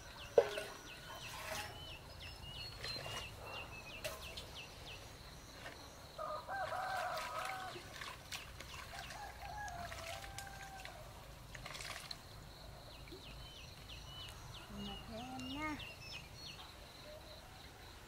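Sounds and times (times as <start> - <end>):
small bird chirping: 0.1 - 6.0, 13.0 - 17.4.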